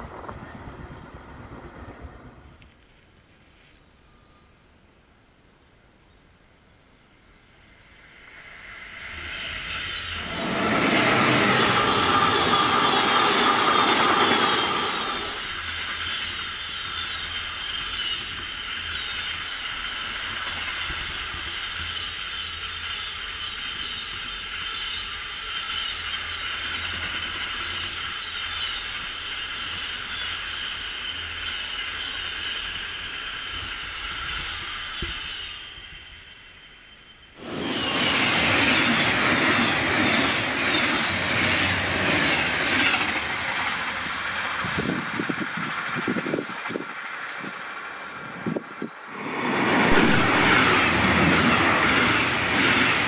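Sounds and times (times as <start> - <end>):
freight train rumbling past: 0.0 - 2.6, 7.1 - 53.0
wheel squeal: 9.2 - 36.1, 36.7 - 44.1.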